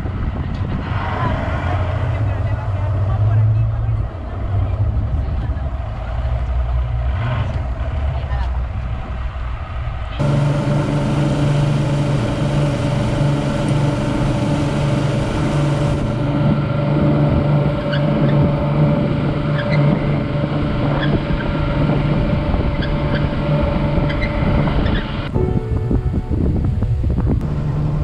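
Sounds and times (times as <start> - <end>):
wind: 0.0 - 28.0
boat engine droning: 9.3 - 28.0
water hissing: 10.2 - 16.5.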